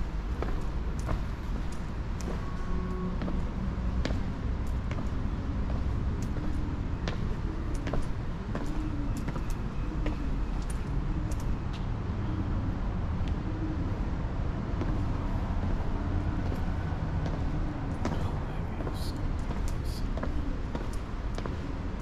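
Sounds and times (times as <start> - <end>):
footsteps on metal stairs: 0.0 - 10.9, 15.6 - 22.0
steady low rumble: 0.0 - 22.0.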